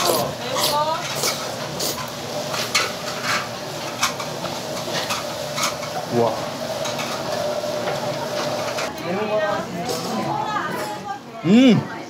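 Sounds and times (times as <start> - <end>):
noodles slurped: 0.0 - 2.1
sizzle from hot stone plate: 0.0 - 8.9.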